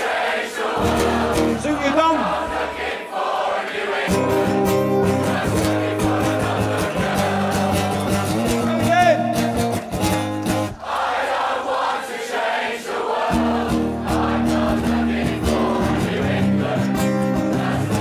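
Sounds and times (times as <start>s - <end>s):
audience voices: 0.0s - 18.0s
acoustic guitar strumming: 0.8s - 2.9s, 4.1s - 10.8s, 13.3s - 18.0s.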